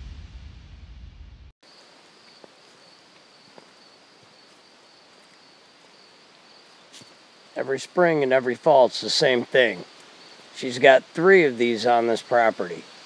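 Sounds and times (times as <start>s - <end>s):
high insect trill: 1.6s - 13.0s
soft ticks and rustles: 2.2s - 8.6s, 9.2s - 10.5s.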